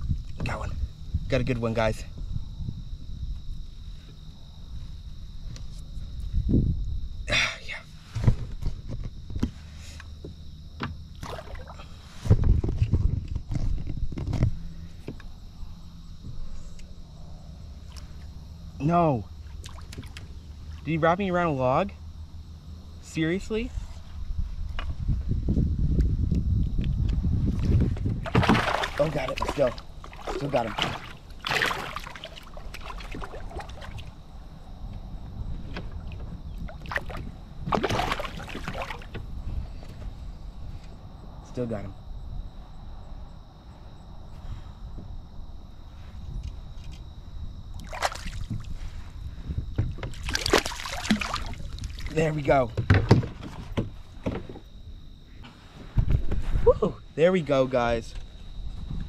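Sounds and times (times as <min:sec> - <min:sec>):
steady low rumble: 0:00.0 - 0:09.4, 0:11.8 - 0:52.8
low rumbling handling noise: 0:08.0 - 0:20.8, 0:48.4 - 0:56.7
water lapping around kayak: 0:08.3 - 0:15.6, 0:19.3 - 0:20.9, 0:27.6 - 0:40.5, 0:45.8 - 0:55.6
water splashes: 0:11.1 - 0:12.0, 0:19.4 - 0:20.9, 0:28.2 - 0:34.2, 0:36.0 - 0:39.2, 0:47.8 - 0:48.7, 0:50.0 - 0:52.5
thumps on plastic kayak: 0:28.0 - 0:29.6, 0:52.7 - 0:54.7.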